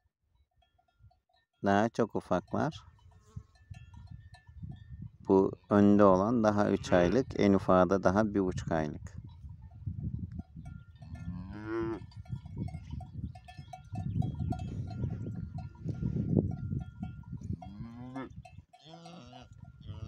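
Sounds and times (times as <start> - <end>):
collar bells tinkling: 0.3 - 5.2, 10.4 - 20.0
cattle mooing: 6.7 - 7.2, 11.1 - 12.2, 17.6 - 20.0.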